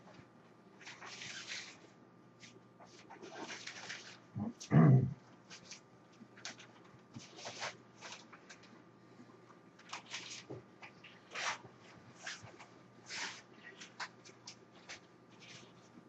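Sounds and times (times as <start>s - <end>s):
nylon fabric rustling and scraping: 0.8s - 4.3s, 5.5s - 8.6s, 9.9s - 16.0s.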